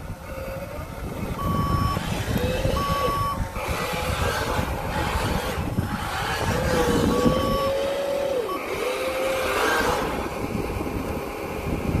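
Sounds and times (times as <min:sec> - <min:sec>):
wavering motor whine: 0:00.0 - 0:12.0
electronic reversing beeper: 0:01.3 - 0:03.4, 0:06.5 - 0:09.3.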